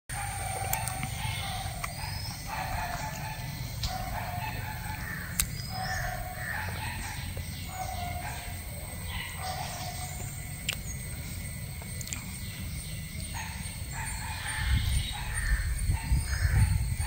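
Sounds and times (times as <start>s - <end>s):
bird calling: 0.1s - 17.0s
low outdoor hum: 0.1s - 17.0s.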